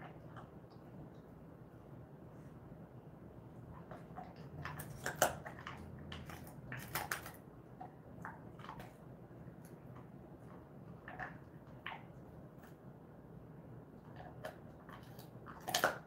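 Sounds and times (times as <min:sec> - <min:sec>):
dog crunching a treat: 0:03.7 - 0:12.8, 0:14.0 - 0:16.0.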